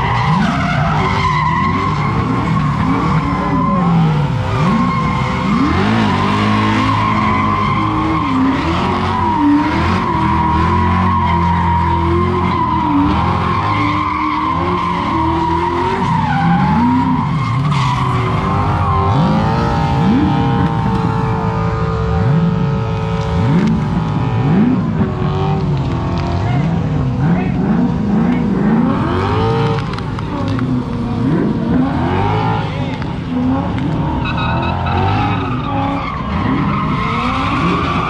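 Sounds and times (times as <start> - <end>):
car engine revving: 0.0 - 38.0
tyres squealing: 33.9 - 38.0.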